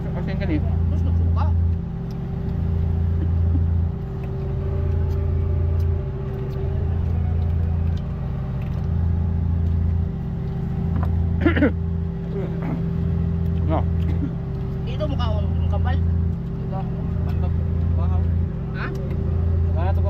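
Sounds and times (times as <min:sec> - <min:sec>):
boat engine droning: 0:00.0 - 0:20.0.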